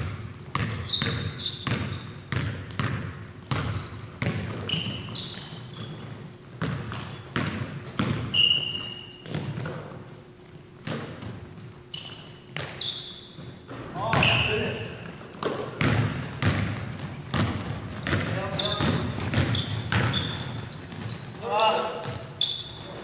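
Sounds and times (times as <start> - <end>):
basketball bouncing on hardwood: 0.0 - 8.3, 10.8 - 11.4, 12.6 - 12.8, 13.4 - 14.5, 15.3 - 21.3, 22.0 - 22.2
sneaker squeaks: 0.5 - 10.2, 10.9 - 23.0.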